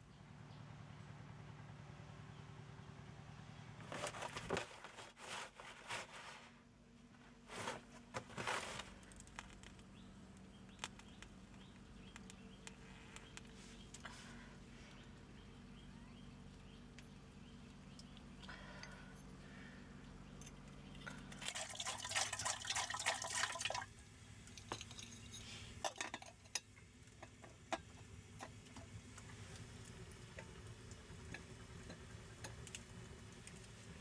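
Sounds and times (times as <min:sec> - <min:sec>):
wood fire crackling: 0:08.4 - 0:15.8, 0:24.4 - 0:34.0
water pouring: 0:21.3 - 0:24.0.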